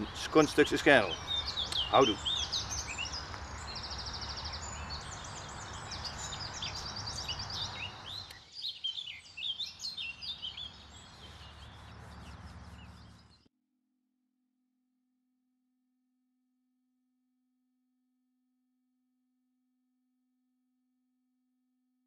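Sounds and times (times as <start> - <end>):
songbirds singing: 0.0 - 13.5.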